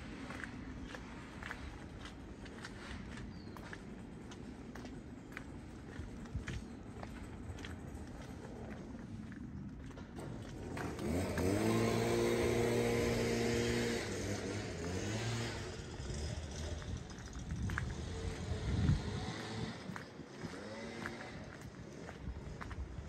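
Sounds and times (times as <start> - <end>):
another vehicle engine: 0.0 - 23.0
vehicle engine pulling away: 7.5 - 23.0.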